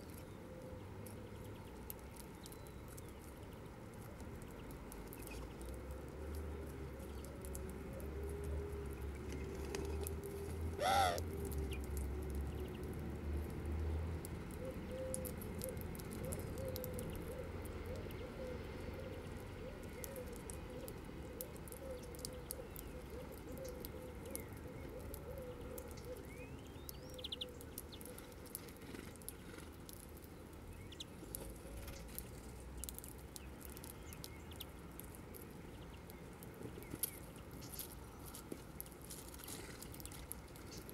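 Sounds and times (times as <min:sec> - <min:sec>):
doves cooing: 0:10.7 - 0:11.3, 0:14.6 - 0:26.4
seeds being pecked and cracked: 0:19.8 - 0:40.9.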